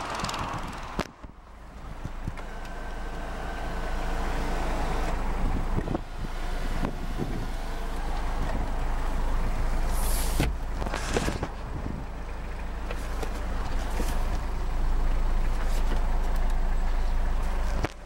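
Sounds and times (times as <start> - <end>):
diesel engine idling: 0.0 - 18.0
handling clicks and rustles: 6.8 - 18.0.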